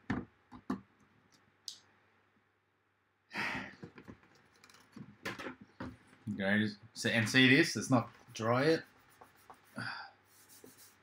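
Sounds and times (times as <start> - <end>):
breathy sigh: 3.3 - 3.8.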